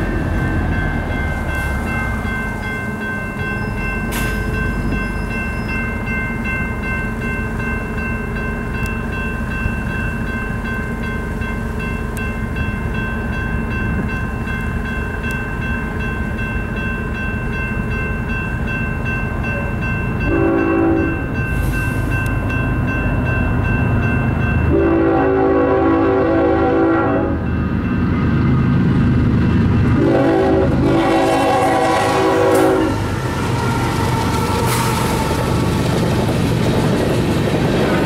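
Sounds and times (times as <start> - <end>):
diesel locomotive engine whine: 0.0 - 38.0
train air horn blasts: 20.3 - 21.2, 24.7 - 27.5, 29.9 - 33.1.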